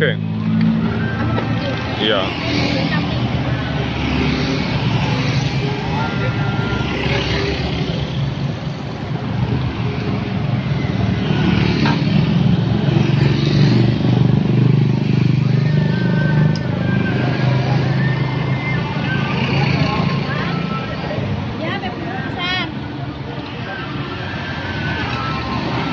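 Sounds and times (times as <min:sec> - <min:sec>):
motorcycles and cars passing: 0:00.0 - 0:25.9.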